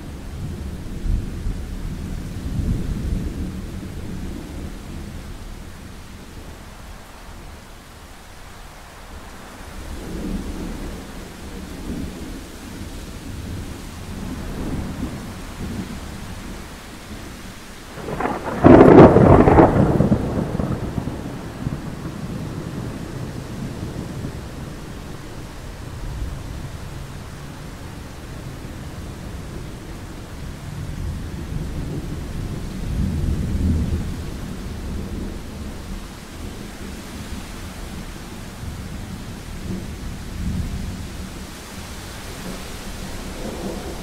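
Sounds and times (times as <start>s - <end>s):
steady rain: 0.0s - 44.0s
low thunder rumbling: 9.6s - 41.8s, 42.4s - 44.0s
loud thunderclap: 17.9s - 24.8s, 42.4s - 44.0s.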